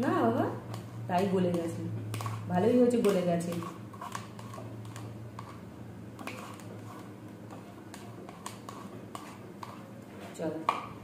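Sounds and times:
spoon scraping paper cup: 0:01.5 - 0:05.6, 0:06.2 - 0:10.4.

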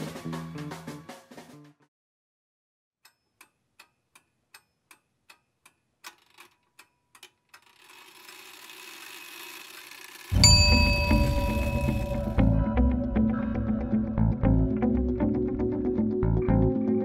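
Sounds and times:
clock-like ticking: 0:03.0 - 0:12.4.

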